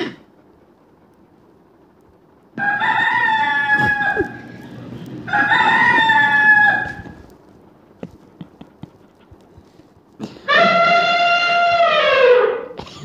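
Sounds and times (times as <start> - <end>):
rooster crowing through speaker: 2.6 - 7.2.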